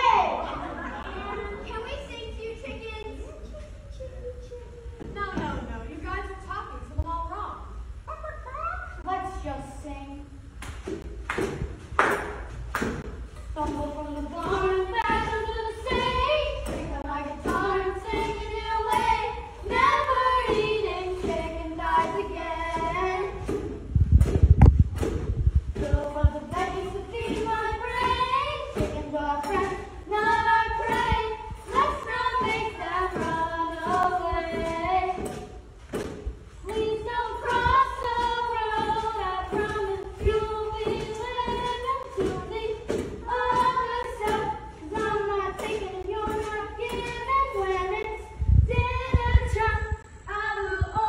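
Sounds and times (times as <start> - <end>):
sharp knocks: 10.6 - 47.7
children singing: 13.6 - 23.7, 25.8 - 35.6, 36.7 - 48.3.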